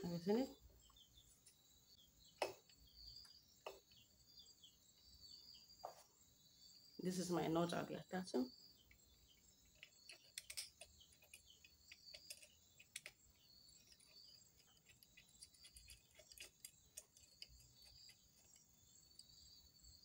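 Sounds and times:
crickets trilling: 0.0 - 20.0
small clicks and taps of nut: 9.6 - 19.4.

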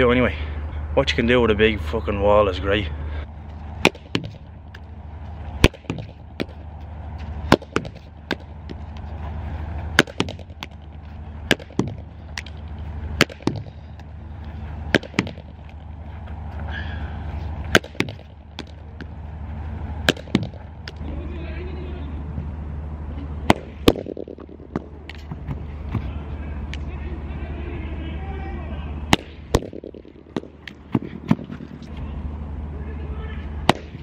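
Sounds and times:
low steady hum: 0.0 - 34.0
stick striking ball on wall: 3.8 - 4.9, 5.6 - 6.6, 7.2 - 9.1, 9.9 - 14.1, 14.9 - 15.8, 17.6 - 19.2, 20.0 - 21.0, 23.5 - 26.1, 29.1 - 31.8, 33.7 - 34.0.

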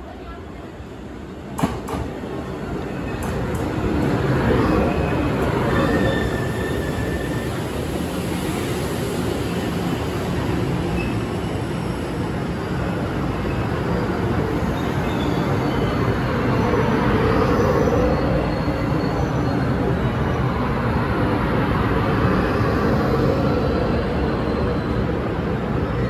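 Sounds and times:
train wheels rumbling on rails: 0.4 - 26.0
high brake squeals: 5.0 - 7.9.

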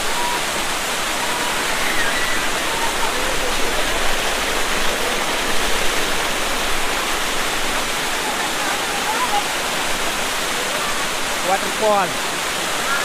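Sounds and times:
small waterfall rushing: 0.0 - 13.0.

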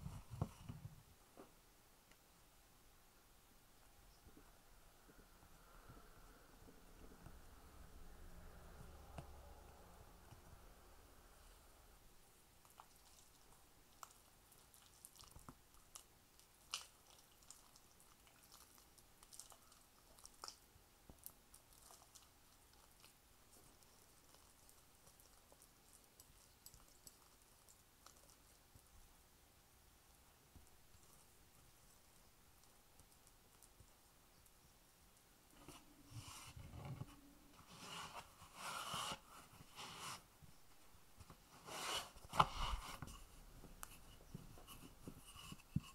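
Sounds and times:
pastry rustling: 12.5 - 29.1.

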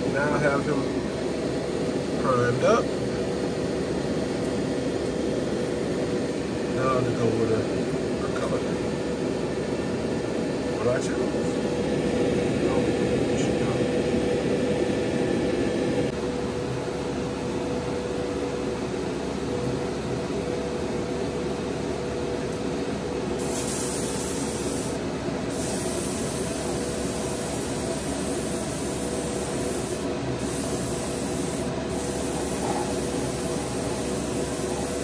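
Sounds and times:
airbrush spraying hiss: 23.4 - 35.0.

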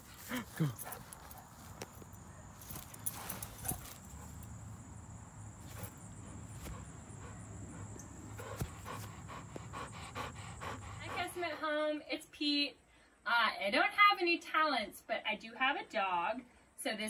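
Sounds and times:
dog panting: 0.0 - 1.7, 3.0 - 4.4, 5.7 - 11.9
rustling on grass: 0.0 - 9.8.

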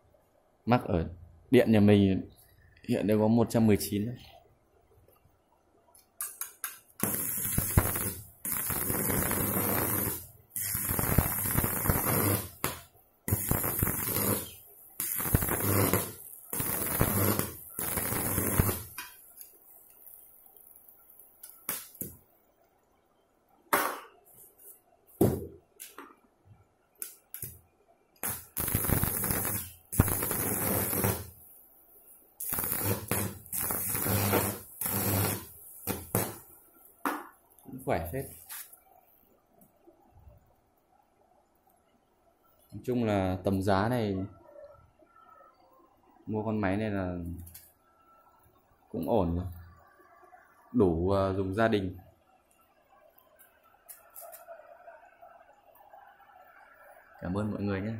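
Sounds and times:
welding arc crackling: 6.2 - 22.2, 27.0 - 27.6, 28.2 - 31.5, 32.4 - 36.6.

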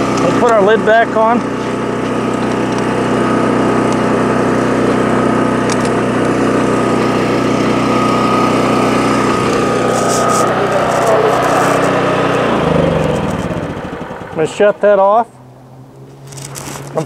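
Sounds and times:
small gasoline engine running: 0.0 - 17.0
vacuum blower high whine: 0.0 - 17.0.

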